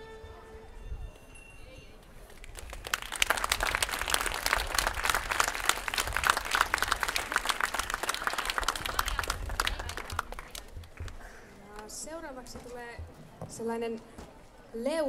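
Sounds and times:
audience applauding: 2.3 - 11.2.

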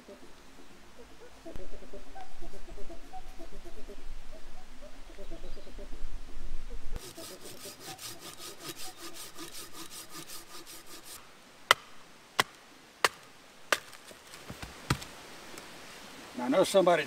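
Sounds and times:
pruning saw cutting log: 7.0 - 15.1.

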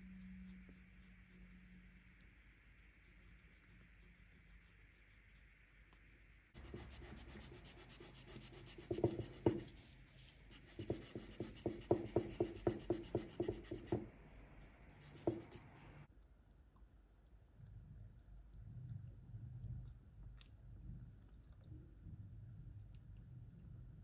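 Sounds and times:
marker tip scratchy rubbing: 6.6 - 14.1, 15.0 - 15.7.

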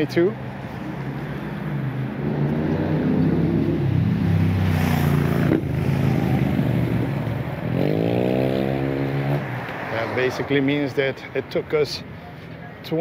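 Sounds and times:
rushing traffic: 0.0 - 13.0
vehicle accelerating: 0.6 - 11.0
motorcycle engine passing: 0.9 - 10.9.

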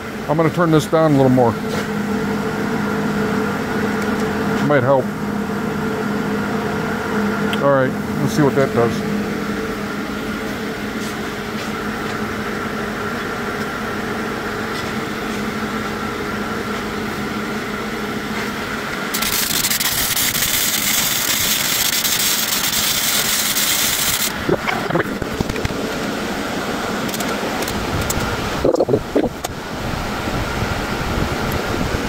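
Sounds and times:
fan hum: 0.0 - 32.0
arc welder crackling: 18.3 - 29.6.

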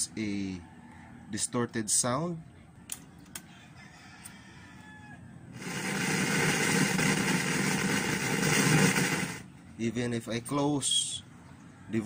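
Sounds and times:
loud static hiss: 5.6 - 9.5.

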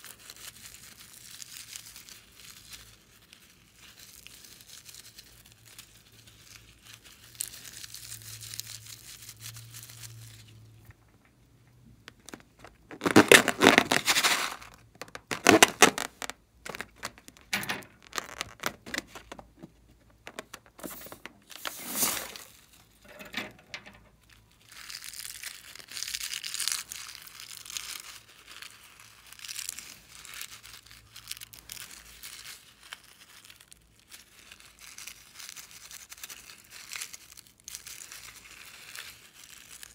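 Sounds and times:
slime squeezing rustle: 0.0 - 11.3, 12.0 - 23.1, 24.1 - 39.9
rubber balloons crinkling: 12.0 - 31.9.

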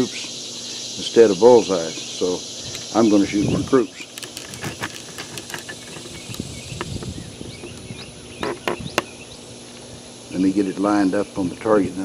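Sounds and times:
high insect buzz: 0.0 - 11.1
handling clicks and knocks: 4.0 - 9.1.

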